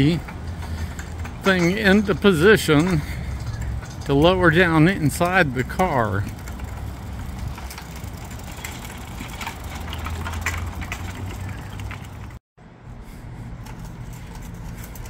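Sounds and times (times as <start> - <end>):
chain clinking and rattling: 0.0 - 12.0
casters rumbling on asphalt: 0.0 - 12.4.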